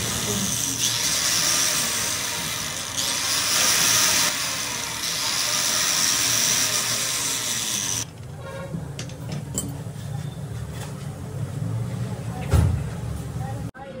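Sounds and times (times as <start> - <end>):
tool hissing whir: 0.0 - 8.1.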